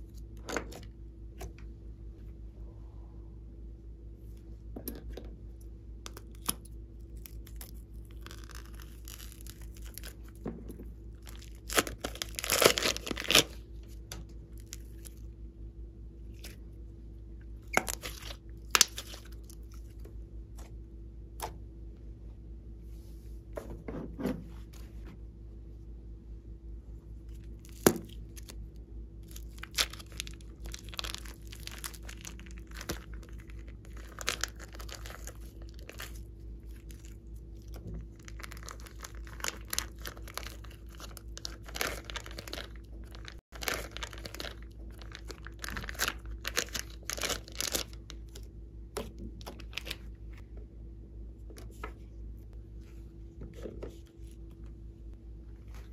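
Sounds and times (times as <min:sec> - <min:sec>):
low background hum: 0:00.0 - 0:55.9
slime crackling and popping: 0:07.2 - 0:10.3, 0:11.2 - 0:13.6, 0:17.7 - 0:19.6, 0:29.3 - 0:48.0.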